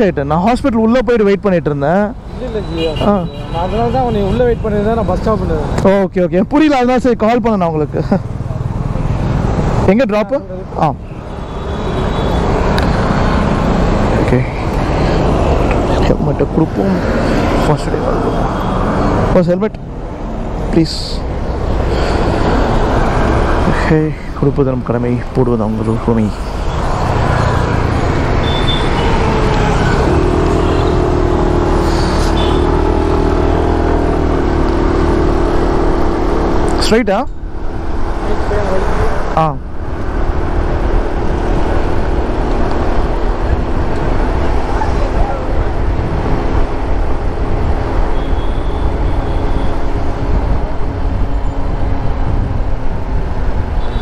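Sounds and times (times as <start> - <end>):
motorcycle engine cruising: 26.1 - 54.0
wind rumble on microphone: 39.8 - 53.8.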